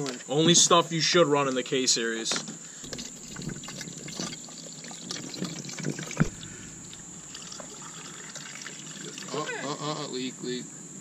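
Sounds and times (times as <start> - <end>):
liquid trickling into plastic bottle: 2.8 - 9.5
sharp knock: 6.1 - 8.3.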